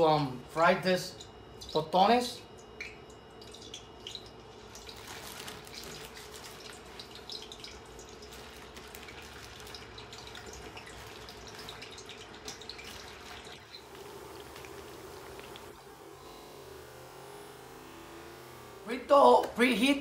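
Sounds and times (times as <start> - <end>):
oil crackles and pops: 2.6 - 18.8
frying in hot oil sizzle: 3.2 - 19.0.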